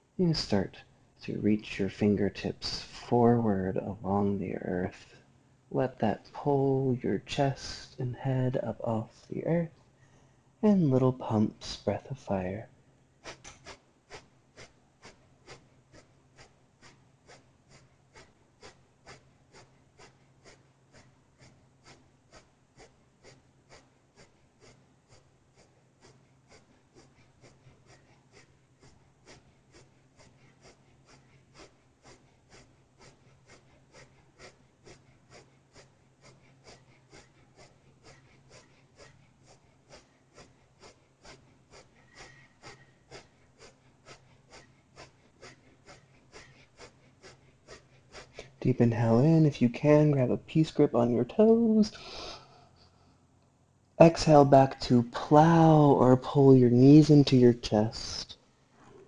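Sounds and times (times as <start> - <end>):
forceful nasal exhalations: 51.9 - 53.1.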